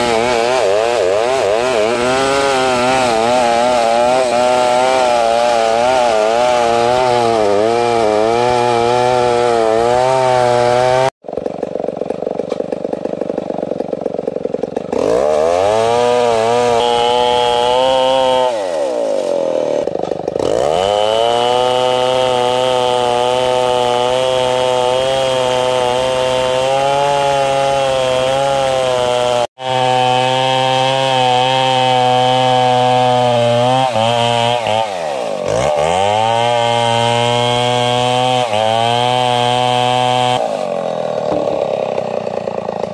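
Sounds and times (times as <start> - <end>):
chainsaw cutting a log: 0.0 - 42.9.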